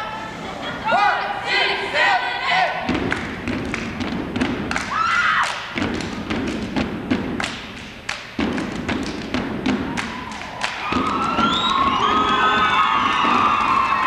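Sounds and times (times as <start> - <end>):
crowd noise: 0.0 - 3.0, 9.8 - 14.0
stomping and clapping on wood floor: 2.9 - 14.0.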